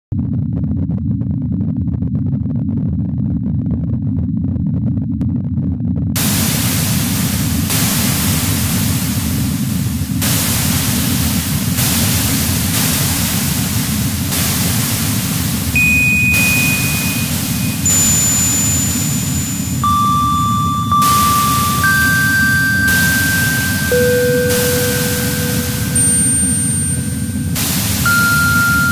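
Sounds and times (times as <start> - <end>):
hiss: 6.2 - 28.9
low band of noise: 15.0 - 28.9
held electronic tones: 15.8 - 28.9.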